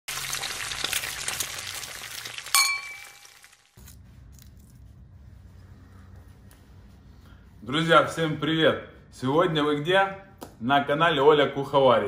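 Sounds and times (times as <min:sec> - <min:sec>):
sharp ringing clink: 0:02.6 - 0:03.2.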